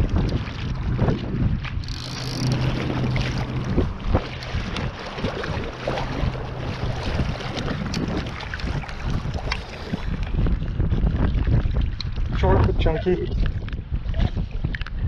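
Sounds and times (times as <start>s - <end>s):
splashes and knocks: 0.0s - 14.9s
wind buffeting microphone: 0.0s - 15.0s
river current rushing: 1.8s - 10.1s.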